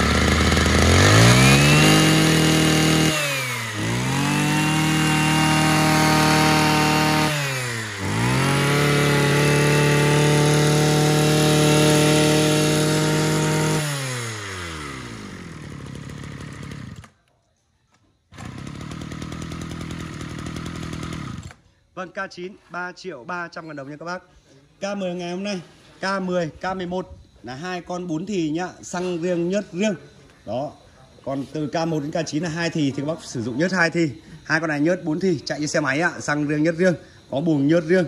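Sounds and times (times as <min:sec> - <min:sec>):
brush cutter engine revving: 0:00.0 - 0:17.2, 0:18.3 - 0:21.6.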